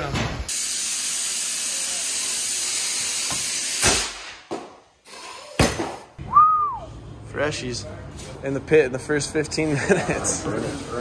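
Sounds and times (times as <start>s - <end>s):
compressed air hissing: 0.5s - 4.3s
rising and falling whistle: 6.2s - 6.9s.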